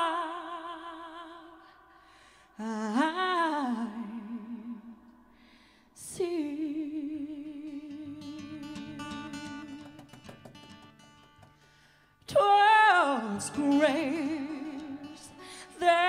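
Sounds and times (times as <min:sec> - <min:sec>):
woman singing wordless notes: 0:06.0 - 0:09.9, 0:12.3 - 0:16.0.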